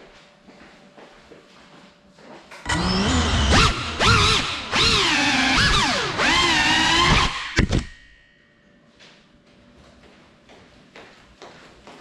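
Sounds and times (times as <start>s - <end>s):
bare footsteps on tiled floor: 0.0s - 2.6s, 9.0s - 12.0s.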